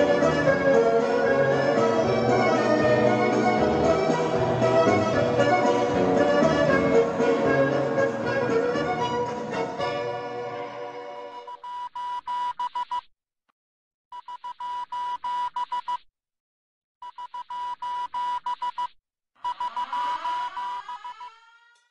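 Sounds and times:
electronic ringtone: 19.4 - 20.8.

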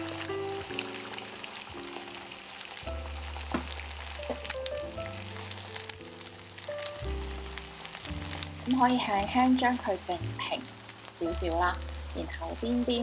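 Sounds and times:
food sizzling in frying pan: 0.0 - 13.0.

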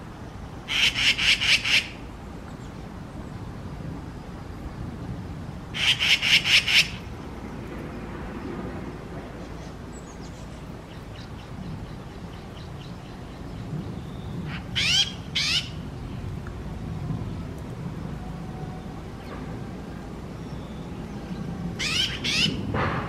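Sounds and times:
magpies giving mobbing calls: 0.7 - 2.0, 5.8 - 7.1, 14.5 - 15.8, 21.8 - 22.6.

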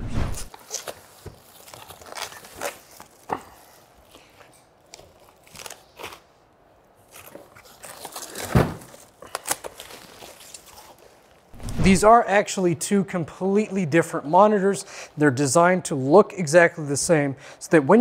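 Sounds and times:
foam and cardboard rustling: 7.2 - 12.1.

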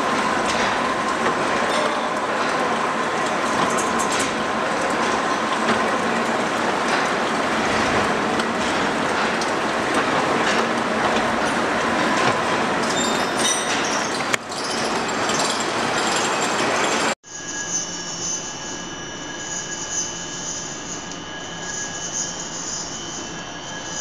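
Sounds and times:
gear-cutting machine clatter: 0.0 - 17.2.

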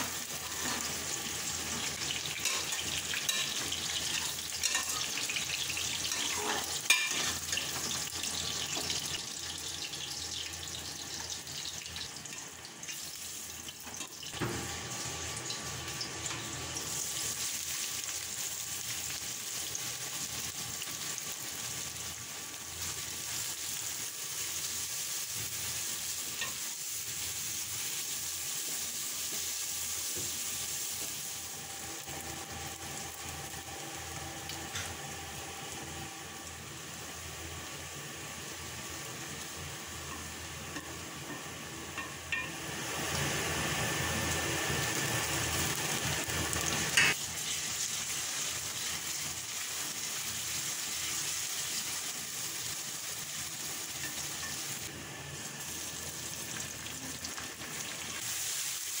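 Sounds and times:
onions sizzling in oil: 0.0 - 59.0.

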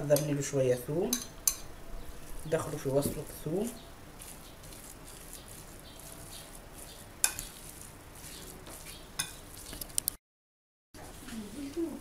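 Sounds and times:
wet squishing and stirring: 1.1 - 10.2.

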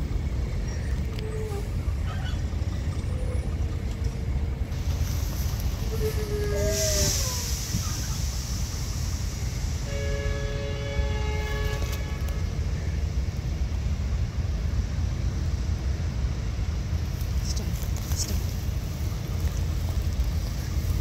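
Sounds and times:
locomotive rumbling: 0.0 - 21.0
locomotive horn: 9.7 - 13.2.

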